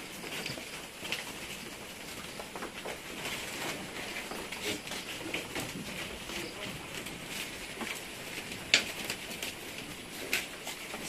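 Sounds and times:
small clicks and crackles: 0:00.0 - 0:11.0.

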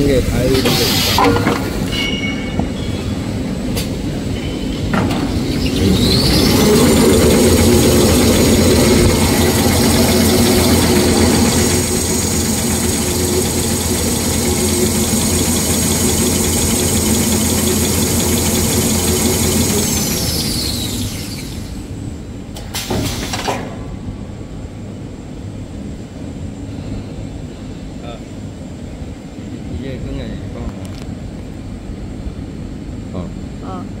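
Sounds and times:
high machine whine: 0:00.0 - 0:22.4
machine humming with roller rattle: 0:00.0 - 0:29.7.

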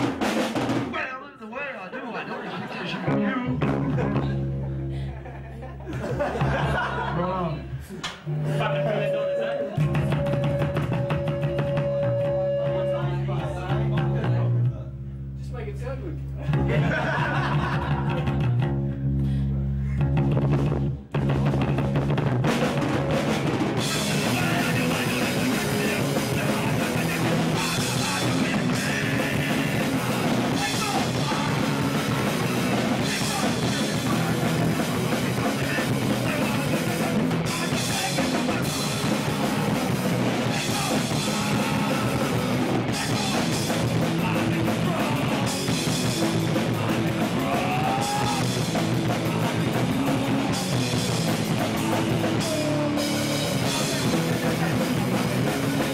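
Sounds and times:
bass guitar: 0:00.0 - 0:01.0, 0:02.7 - 0:55.9
drum kit: 0:00.0 - 0:01.1, 0:03.0 - 0:04.9, 0:05.8 - 0:07.1, 0:08.0 - 0:14.9, 0:16.3 - 0:55.9
electric guitar: 0:03.1 - 0:06.9, 0:16.2 - 0:55.9
singer shouting into microphone: 0:46.7 - 0:48.6.

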